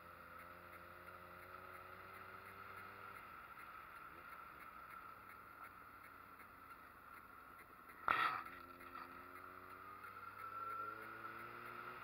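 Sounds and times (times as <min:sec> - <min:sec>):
faint motorcycle engine hum: 0:00.0 - 0:12.0.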